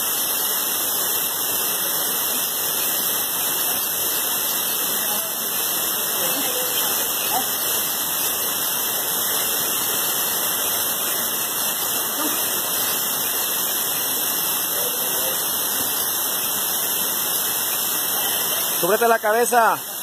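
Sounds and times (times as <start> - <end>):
waterfall rushing: 0.0 - 20.0.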